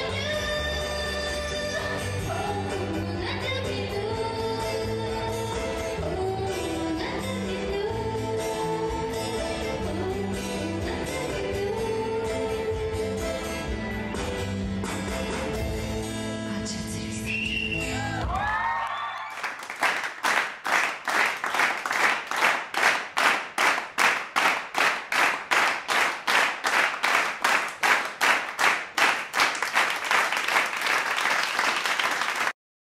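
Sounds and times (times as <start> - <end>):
guitar-backed music: 0.0 - 18.2
audience clapping in unison: 18.2 - 32.6.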